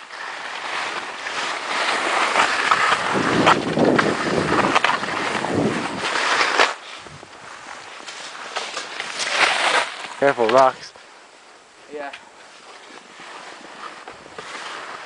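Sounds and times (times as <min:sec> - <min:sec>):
skis scraping over snow: 0:00.0 - 0:15.0
wind buffeting microphone: 0:02.7 - 0:06.1.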